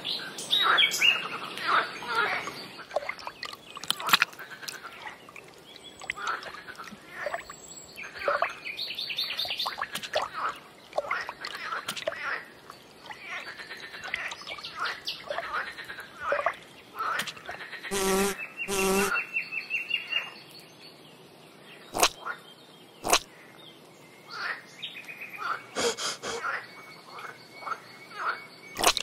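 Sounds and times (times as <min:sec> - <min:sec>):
birds chirping: 0:00.0 - 0:21.0
fly buzzing: 0:17.9 - 0:19.1.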